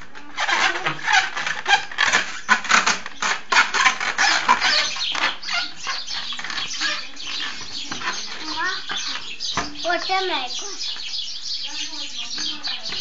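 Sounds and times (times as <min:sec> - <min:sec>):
balloons rubbing and knocking: 0:00.0 - 0:10.4.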